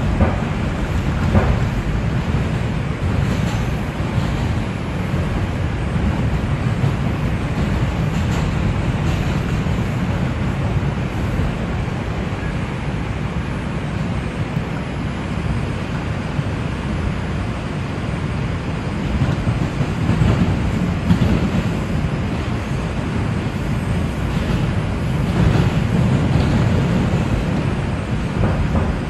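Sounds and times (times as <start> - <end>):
train car rattle: 0.0 - 14.6, 16.8 - 29.0
train wheels rumbling on rails: 0.0 - 29.0.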